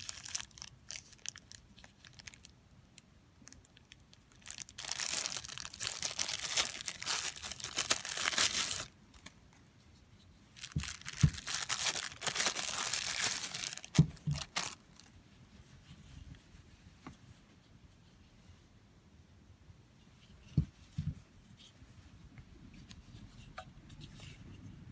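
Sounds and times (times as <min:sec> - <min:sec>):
plastic bag crinkling: 0:00.0 - 0:02.5, 0:03.4 - 0:09.3, 0:10.6 - 0:15.1.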